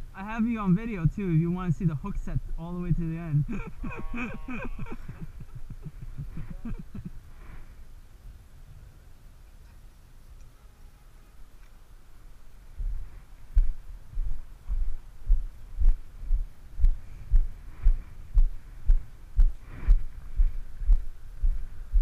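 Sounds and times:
footsteps on pavement: 12.8s - 22.0s.

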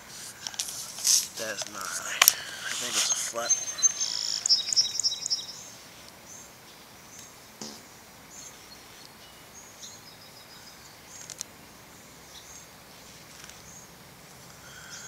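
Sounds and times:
high bird chirps: 1.4s - 6.4s.

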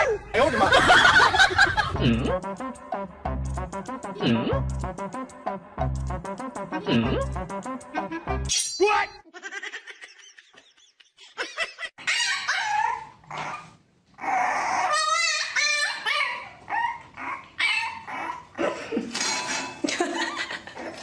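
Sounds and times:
dogs whining and yipping: 12.0s - 18.6s.

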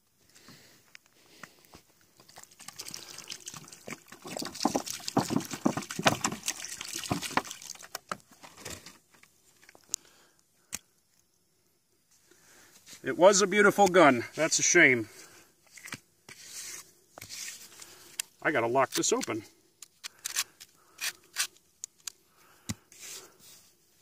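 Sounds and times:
water pouring onto sand: 2.3s - 8.0s.

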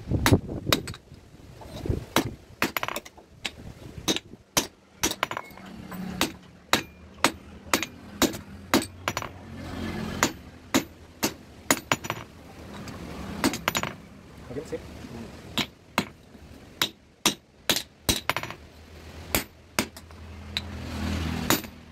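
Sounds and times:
hammer striking hot metal on anvil: 6.2s - 9.3s.

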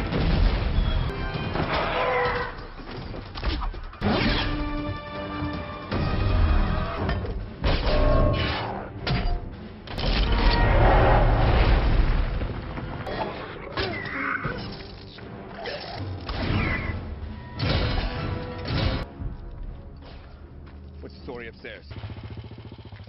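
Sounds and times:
action movie music: 0.0s - 22.7s
heavy booms and crashes: 10.3s - 13.1s.

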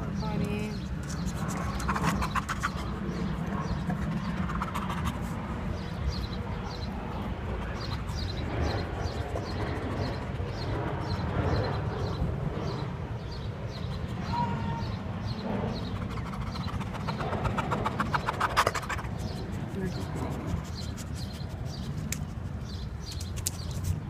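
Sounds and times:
dog panting: 1.1s - 5.9s, 15.8s - 23.2s.

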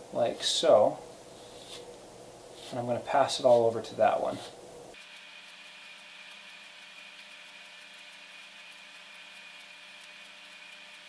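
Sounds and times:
low hiss and hum: 0.0s - 5.0s
wool combs ticking through wool: 5.0s - 11.0s.

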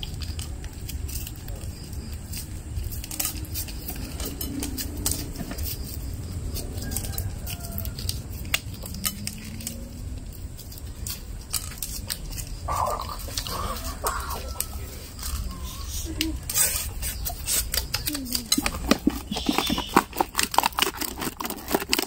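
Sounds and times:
candy wrappers crinkling: 6.9s - 22.0s
short animal calls: 12.7s - 16.8s, 19.2s - 20.1s.

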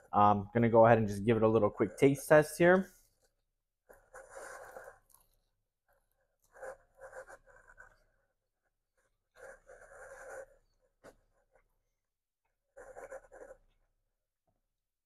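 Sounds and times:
person chewing food: 4.8s - 5.5s.

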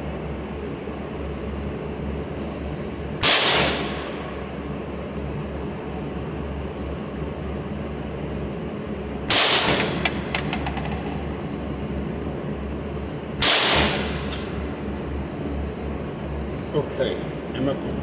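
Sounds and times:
low ventilation hum: 0.0s - 18.0s
gunshots ringing indoors: 3.2s - 4.1s, 9.3s - 10.0s, 13.4s - 14.2s.

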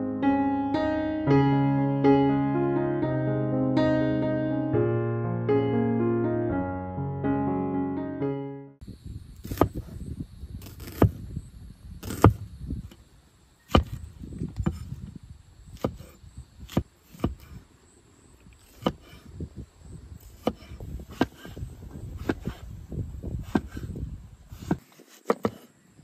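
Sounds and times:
piano piece: 0.0s - 8.8s
wind rumble on microphone: 8.8s - 17.7s, 18.4s - 24.8s.

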